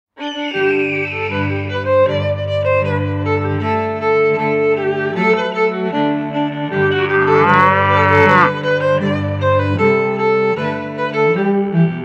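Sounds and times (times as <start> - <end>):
bowed strings music: 0.3 - 12.0
cow mooing: 6.8 - 8.6.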